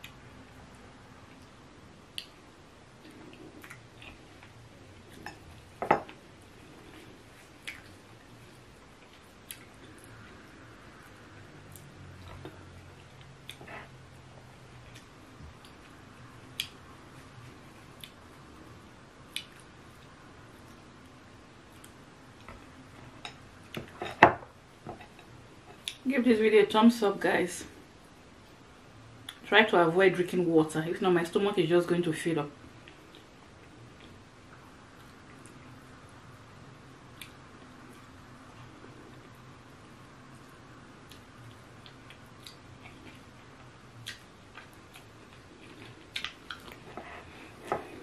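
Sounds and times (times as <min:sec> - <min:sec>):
wet eating sounds: 0:40.4 - 0:48.0.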